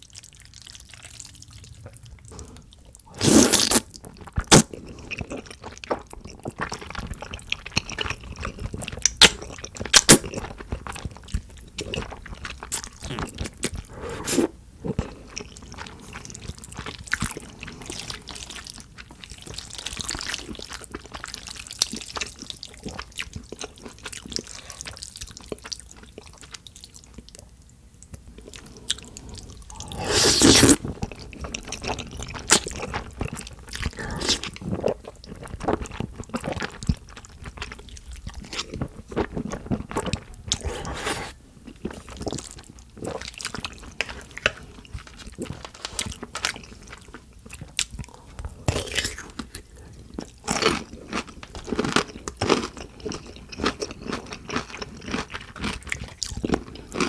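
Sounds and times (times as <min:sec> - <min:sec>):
wet chewing and mouth smacks: 0:14.9 - 0:57.0
noodle slurping: 0:29.4 - 0:30.8, 0:40.5 - 0:41.4.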